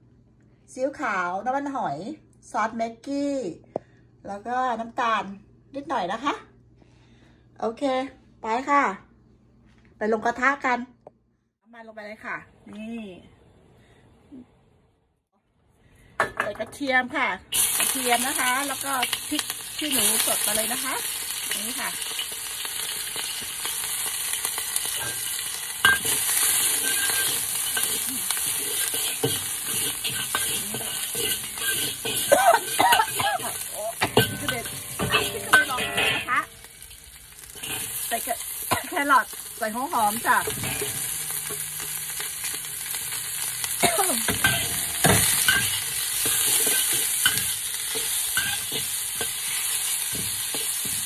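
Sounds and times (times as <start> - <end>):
food sizzling in hot oil: 17.5 - 51.0
metal ladle scraping wok: 17.5 - 51.0.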